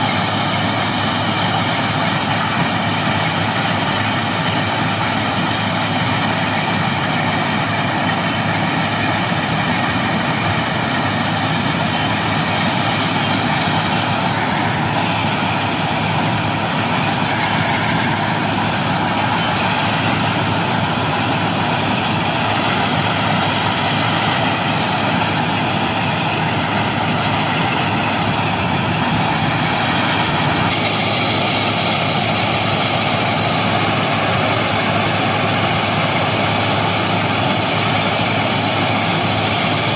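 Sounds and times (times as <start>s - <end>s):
track machine mechanical din: 0.0s - 6.8s.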